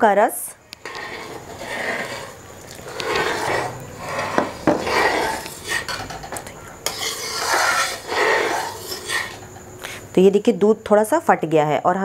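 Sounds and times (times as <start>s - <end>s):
metal ladle scraping a pan: 0.8s - 6.2s, 6.8s - 9.6s.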